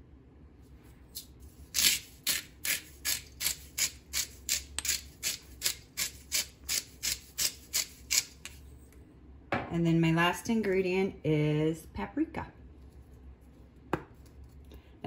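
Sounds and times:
salt grinder rasping: 1.7s - 8.5s.

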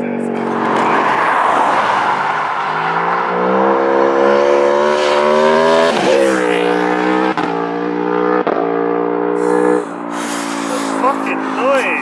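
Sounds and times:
motorcycle engine accelerating hard: 2.9s - 12.0s.

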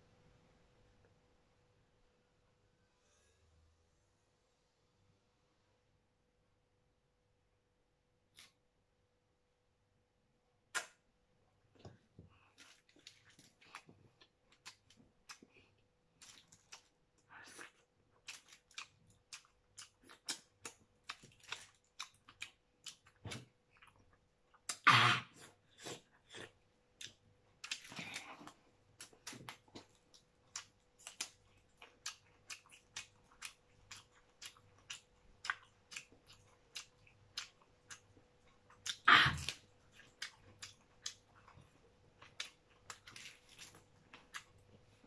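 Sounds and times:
person chewing with wet smacks: 11.7s - 45.0s.

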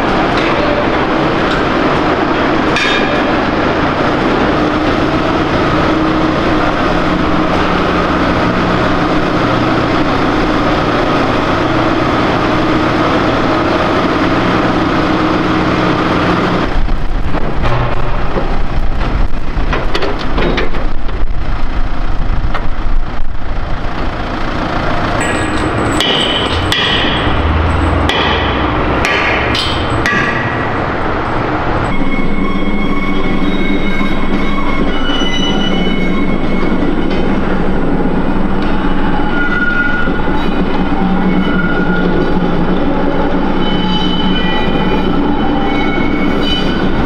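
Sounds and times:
tractor engine running: 0.0s - 43.8s
metal clanks and knocks: 2.7s - 3.5s, 17.4s - 19.1s, 19.7s - 21.2s, 25.2s - 31.4s
low rumble: 16.6s - 32.6s.

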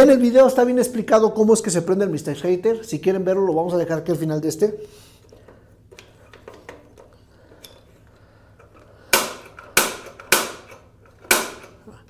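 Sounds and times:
piezo igniter snapping: 9.1s - 11.8s.

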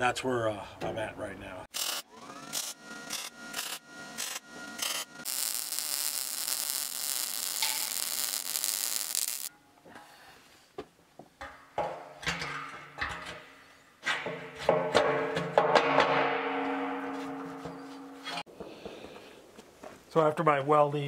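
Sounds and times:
welder arc crackling: 4.8s - 9.5s.

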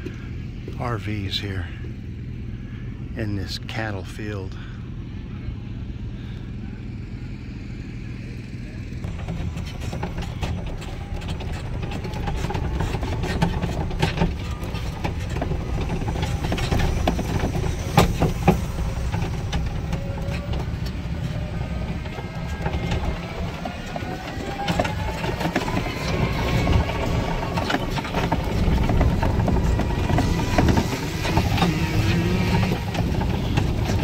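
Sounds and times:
golf cart low rumble: 0.0s - 34.0s
cart rattles and knocks: 9.1s - 34.0s.

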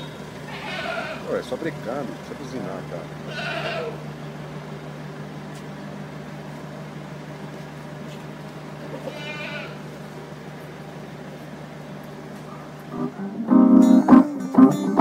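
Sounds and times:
goat bleating: 0.5s - 1.3s, 3.3s - 4.0s, 9.0s - 9.9s.

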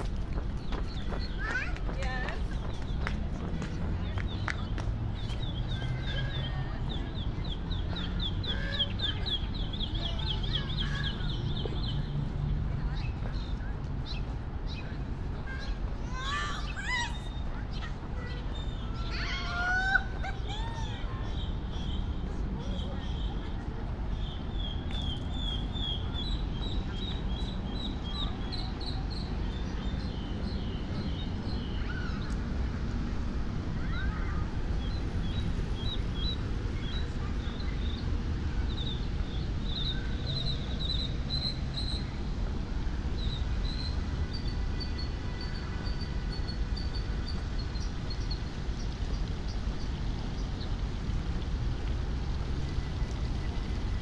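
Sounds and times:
birds chirping: 0.0s - 19.3s.

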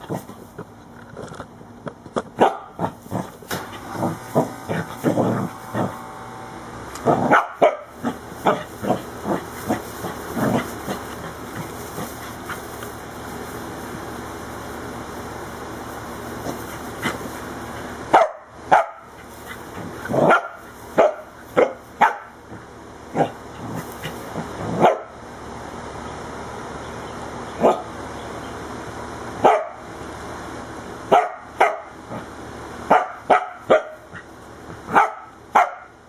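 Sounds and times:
dog barking: 2.4s - 3.0s, 7.1s - 9.4s, 18.1s - 19.1s, 20.2s - 22.4s, 24.8s - 25.1s, 27.6s - 27.9s, 29.4s - 29.8s, 31.1s - 31.9s, 32.9s - 34.1s, 34.9s - 36.0s.

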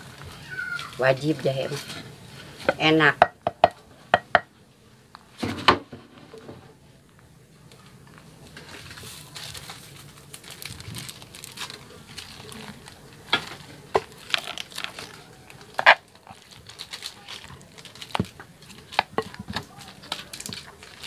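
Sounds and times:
pestle crunching in mortar: 15.7s - 21.0s.

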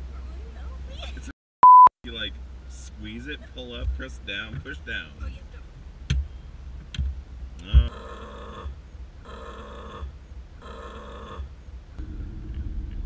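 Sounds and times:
low grumbling noise: 12.0s - 13.0s.

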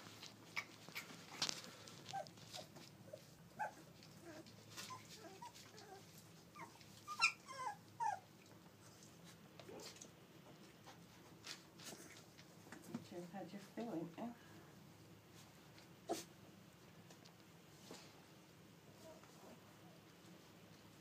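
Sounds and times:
puppies squeaking and whining: 2.1s - 8.3s
puppies squealing: 6.6s - 8.2s.

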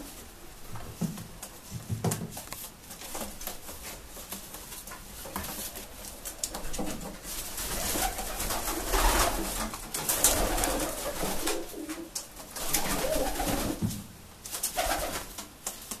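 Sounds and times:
pigeon cooing: 10.2s - 13.8s.

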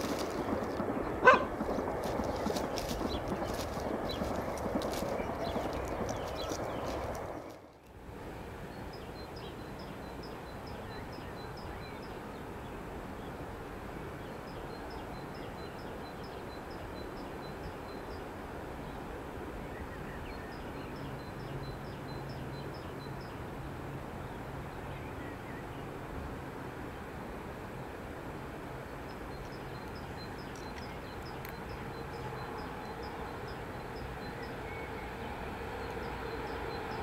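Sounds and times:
bird chirping: 0.0s - 7.6s, 29.3s - 37.0s.

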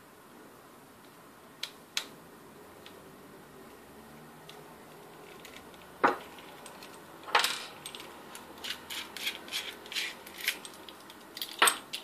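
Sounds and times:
small metal parts clicking: 4.5s - 12.0s.

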